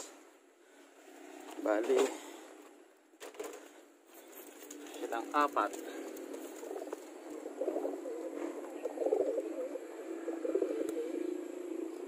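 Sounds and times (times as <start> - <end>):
steady low hum: 3.8 - 12.0
pigeons cooing: 4.7 - 12.0.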